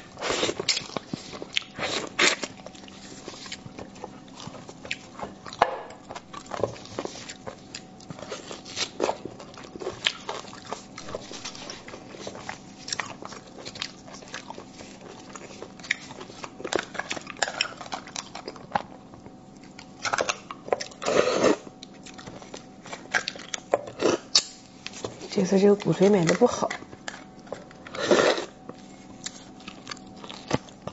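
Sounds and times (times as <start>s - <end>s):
wet chewing and mouth smacks: 0.1s - 21.0s, 29.0s - 30.9s.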